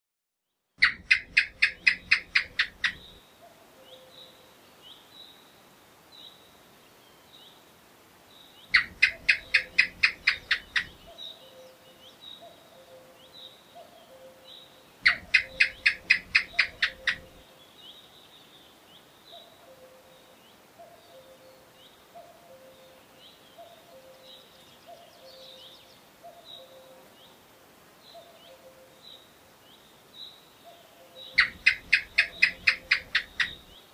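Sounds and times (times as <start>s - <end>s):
faint birdsong: 0.5s - 33.9s
gecko chirping: 0.8s - 3.2s, 8.7s - 11.1s, 15.0s - 17.4s, 31.4s - 33.7s.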